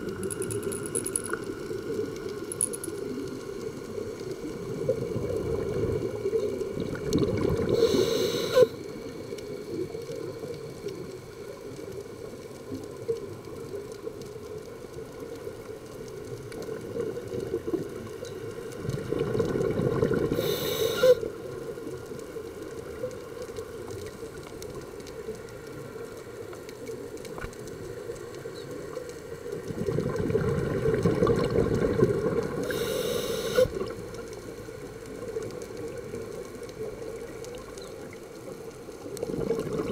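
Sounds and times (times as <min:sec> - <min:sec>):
scuba regulator bubbling exhalations: 0:04.6 - 0:08.8, 0:18.8 - 0:21.3, 0:29.6 - 0:34.1, 0:39.2 - 0:39.9
regulator hiss: 0:07.7 - 0:09.0, 0:20.4 - 0:21.3, 0:32.6 - 0:33.9.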